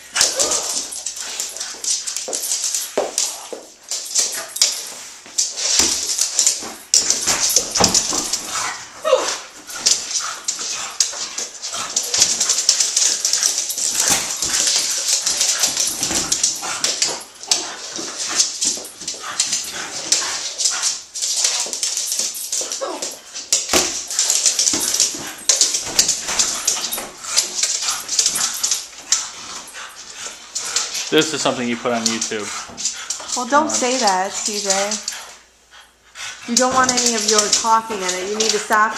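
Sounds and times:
dog whining and yipping: 0.2s - 1.0s, 8.6s - 9.6s.

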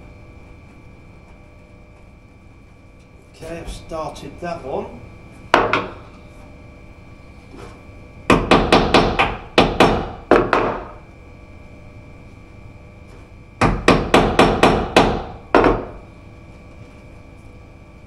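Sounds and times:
hammer striking wood: 8.3s - 11.0s, 13.6s - 16.0s.

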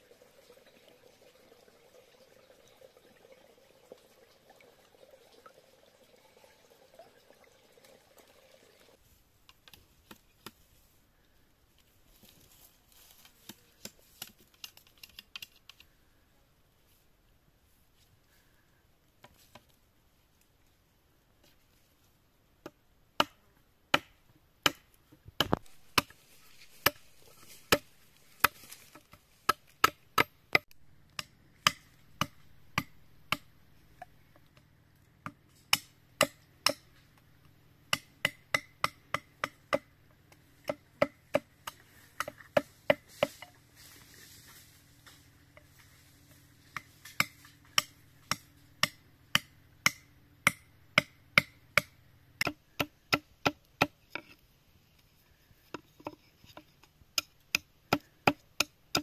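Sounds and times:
knife chopping bamboo on wood: 22.6s - 26.2s, 26.8s - 33.5s, 35.2s - 36.9s, 37.9s - 39.9s, 40.6s - 43.5s, 46.7s - 54.4s, 55.7s - 59.0s.

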